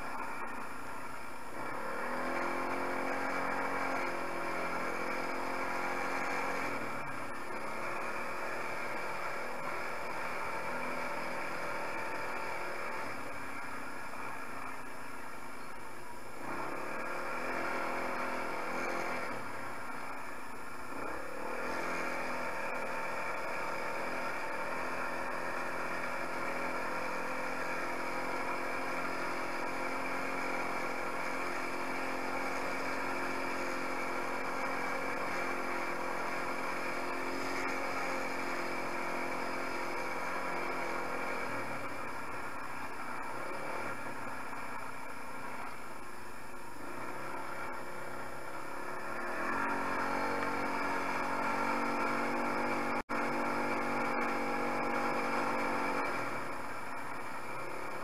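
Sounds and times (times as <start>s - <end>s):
quad bike engine running: 0.0s - 58.0s.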